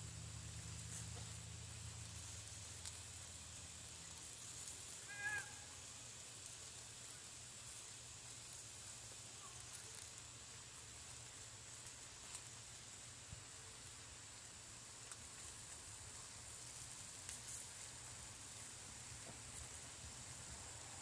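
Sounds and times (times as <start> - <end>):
vegetables sizzling in a skillet: 0.0 - 21.0.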